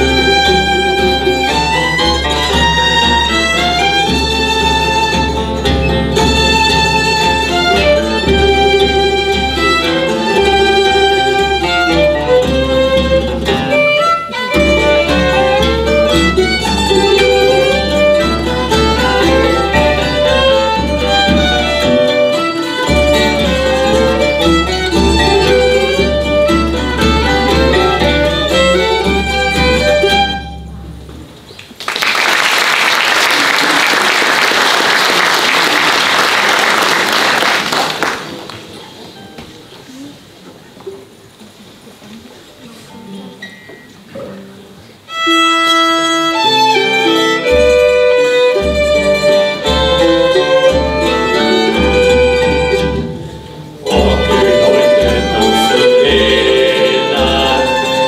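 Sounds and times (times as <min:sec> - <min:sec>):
folk ensemble of violins and plucked strings: 0:00.0 - 0:31.4, 0:44.9 - 0:58.0
audience applause: 0:31.7 - 0:38.8.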